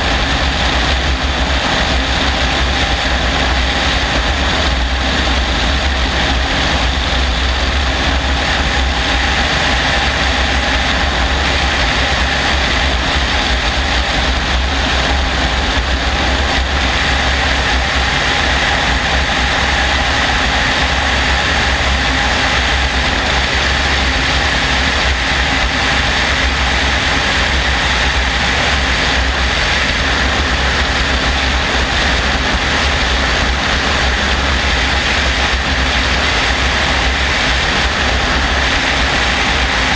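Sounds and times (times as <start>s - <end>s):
helicopter engine and rotor drone: 0.0s - 39.9s
wind rushing over microphone: 0.0s - 39.9s.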